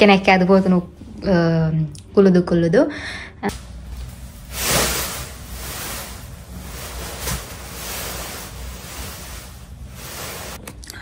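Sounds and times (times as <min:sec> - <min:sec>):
bean bag chair rustling: 0:03.7 - 0:10.6.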